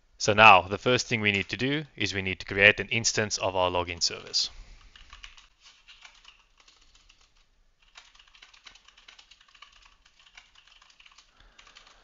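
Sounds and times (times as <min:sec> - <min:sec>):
typing on a keyboard: 0:01.3 - 0:01.6, 0:04.9 - 0:12.0.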